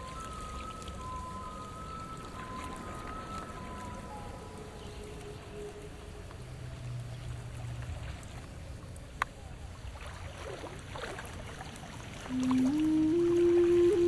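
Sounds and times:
water lapping against rocks: 6.8 - 14.0
low hum: 12.2 - 14.0.

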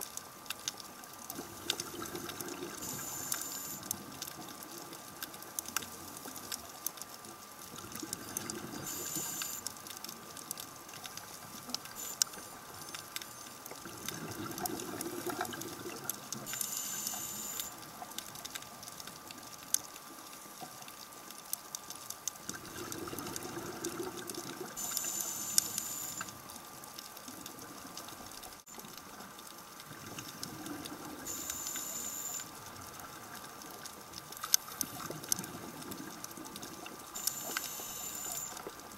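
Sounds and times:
exhaled bubbles rushing: 1.4 - 3.0, 13.8 - 16.2, 22.5 - 24.8
regulator inhalation hiss: 2.8 - 3.8, 8.9 - 9.7, 16.5 - 17.7, 24.8 - 26.3, 31.3 - 32.5, 37.2 - 38.6.

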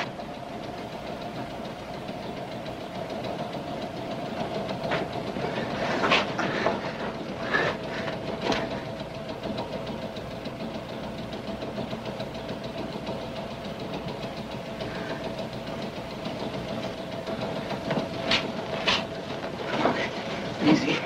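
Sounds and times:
subway train rumbling on track: 13.6 - 21.0.

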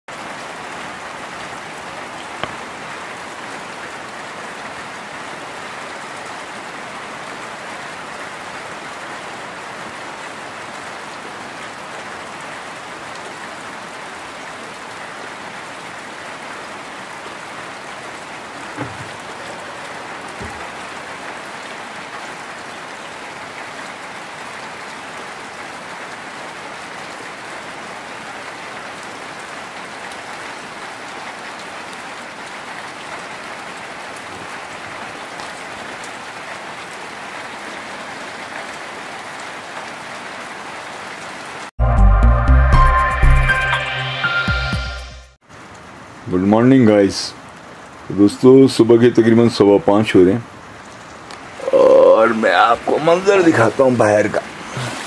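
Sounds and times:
steady rain falling: 0.1 - 41.8, 45.4 - 55.0
sharp tap: 2.4 - 2.6.

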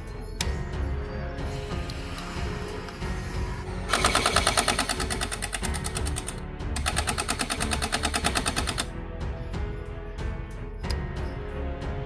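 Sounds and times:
gel blaster firing full auto: 3.9 - 8.9.

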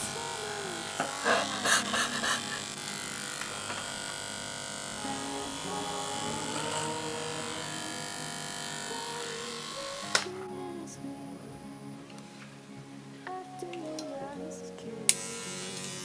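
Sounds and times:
electric hair clippers buzzing: 0.0 - 10.4, 15.1 - 16.0.

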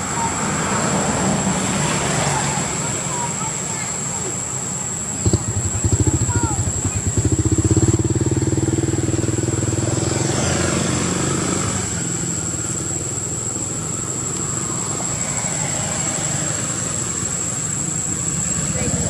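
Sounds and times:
engine rumble: 0.0 - 19.0
vehicle engine passing by: 5.2 - 19.0.

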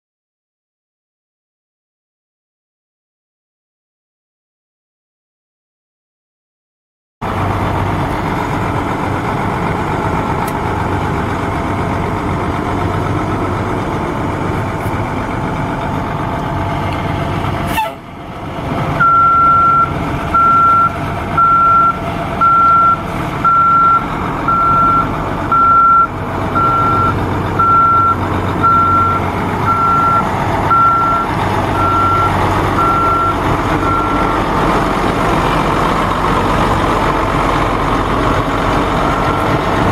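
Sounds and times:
diesel truck engine idling: 7.2 - 39.9
backup alarm beeping: 19.0 - 34.4.

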